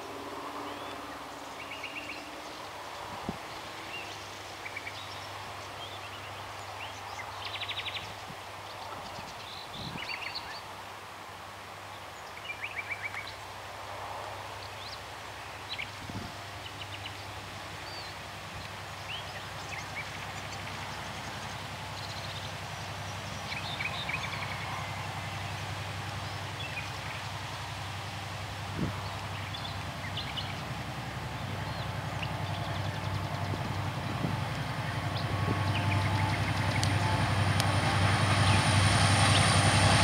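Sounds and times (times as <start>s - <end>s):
diesel locomotive engine hum: 0.0s - 10.0s, 12.9s - 40.0s
songbirds chirping: 14.4s - 39.6s.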